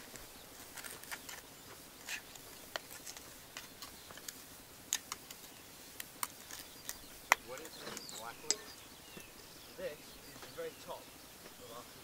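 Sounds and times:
trowel scraping soil: 0.0 - 8.3.

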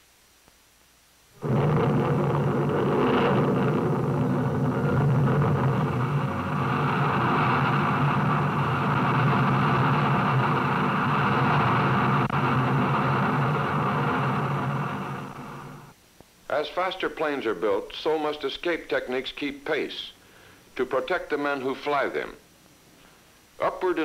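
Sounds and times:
low hum: 1.4 - 16.0
rocket motors roaring: 1.4 - 16.0.

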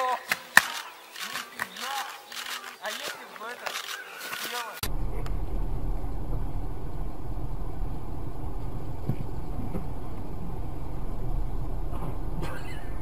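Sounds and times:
car engine and road noise: 4.8 - 13.0.

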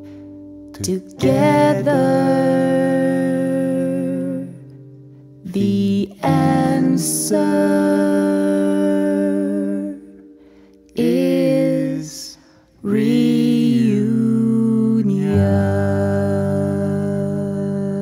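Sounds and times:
acoustic guitar: 0.0 - 18.0
voices singing in harmony: 0.8 - 4.6, 5.5 - 10.2, 11.0 - 18.0.

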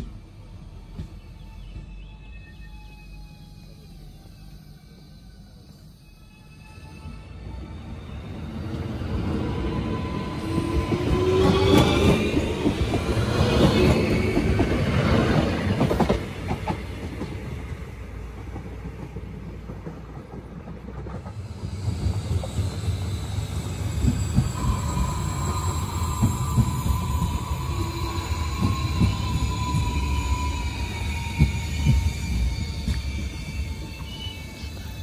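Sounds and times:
train approaching: 0.0 - 35.0
electric train motors whining: 0.9 - 16.2, 21.3 - 35.0
wheel and rail noise: 7.6 - 35.0.

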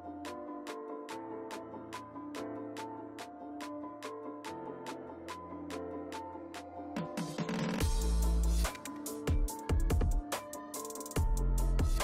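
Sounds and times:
background music with drum beat: 7.0 - 12.0.

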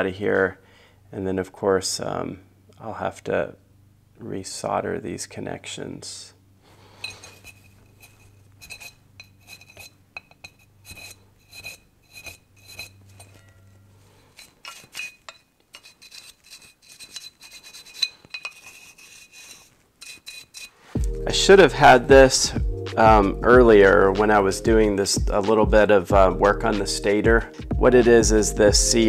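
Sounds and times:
metal pick scraping and clinking: 6.9 - 20.8.

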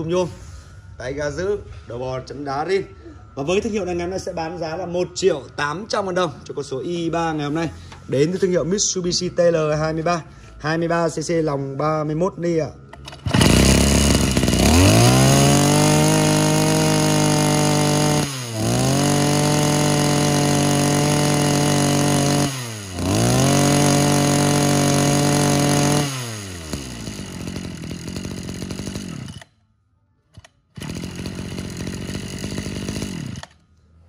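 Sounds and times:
brush cutter engine revving: 12.9 - 29.5, 30.4 - 33.6.

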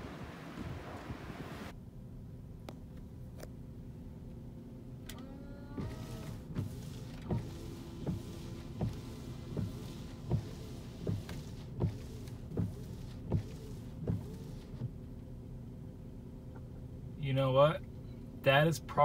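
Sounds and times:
windshield wipers sweeping: 0.0 - 1.7, 5.1 - 15.4
wiper knock: 5.8 - 14.9
washer spraying fluid: 5.8 - 15.1.

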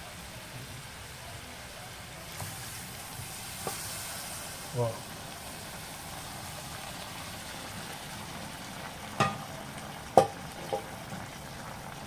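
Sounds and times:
meat sizzling in a pot: 0.0 - 12.0.

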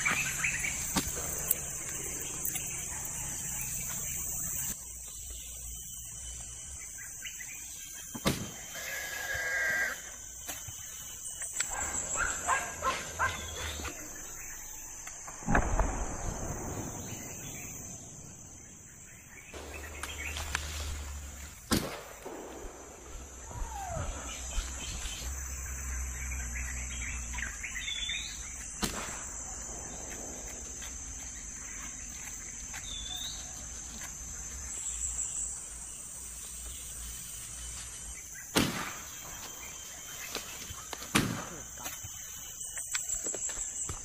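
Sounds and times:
high insect drone: 0.0 - 44.0
sharp bangs: 15.2 - 18.7.

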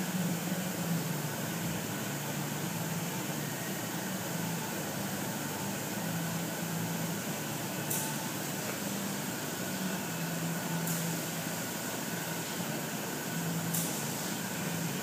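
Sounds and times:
fan whirring: 0.0 - 15.0.

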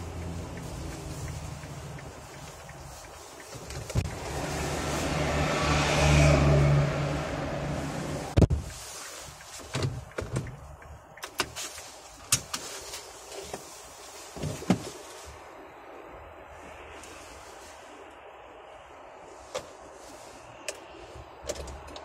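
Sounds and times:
scattered clicks and knocks: 9.4 - 12.6.

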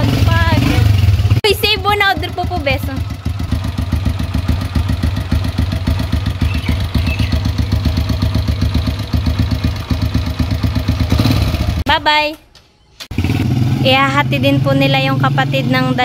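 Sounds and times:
motorcycle engine idling: 0.0 - 11.9.

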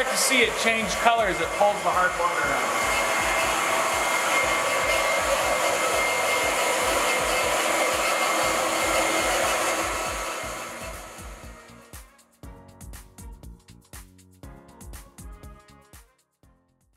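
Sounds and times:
electric pump running: 0.0 - 11.9.

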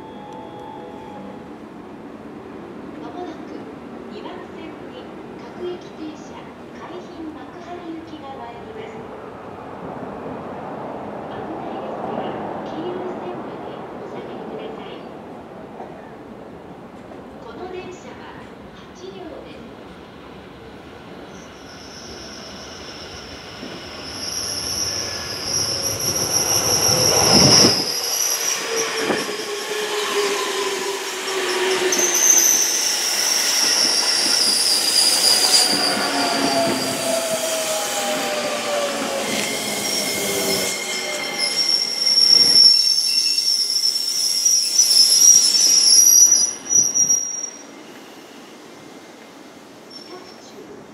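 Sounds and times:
train wheels squealing: 21.2 - 48.7, 49.9 - 50.5
traction motors whining: 22.1 - 43.6.

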